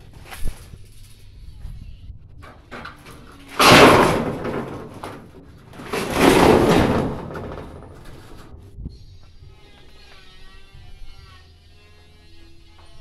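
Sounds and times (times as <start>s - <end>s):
metal roofing sheets clattering: 2.4s - 8.8s.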